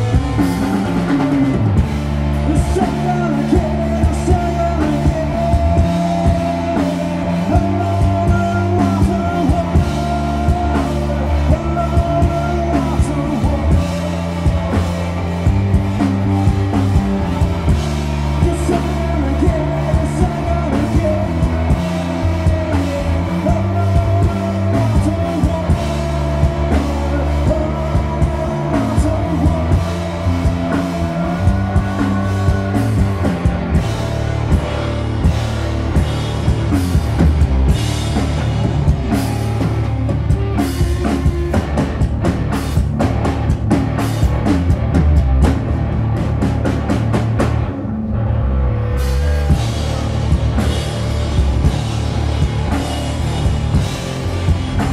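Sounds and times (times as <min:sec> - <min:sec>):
person singing: 0:00.0 - 0:34.6
bass guitar: 0:00.0 - 0:54.9
distorted electric guitar: 0:00.0 - 0:54.9
drum kit: 0:00.0 - 0:54.9.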